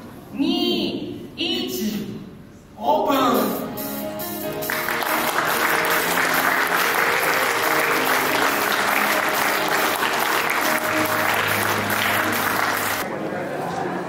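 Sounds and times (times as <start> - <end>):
audience clapping: 4.6 - 13.1.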